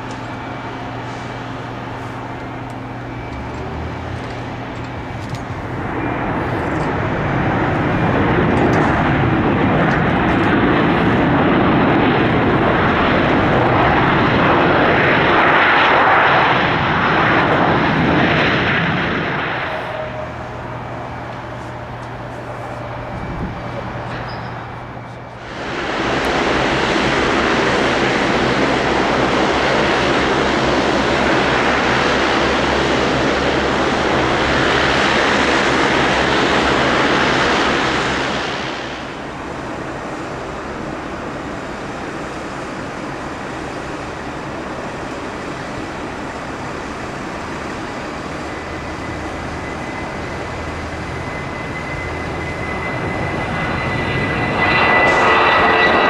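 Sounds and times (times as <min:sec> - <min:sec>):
jet engines roaring: 0:00.0 - 0:56.0.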